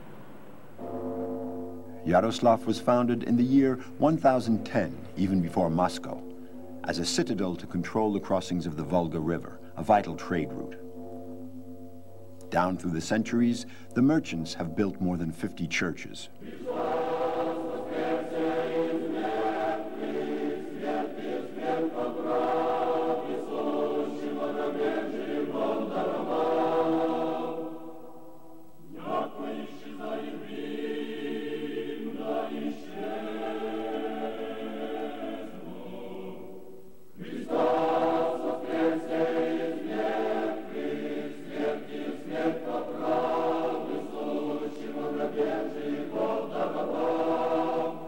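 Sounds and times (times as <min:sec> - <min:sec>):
choir singing chant-like chords: 0:00.0 - 0:48.0.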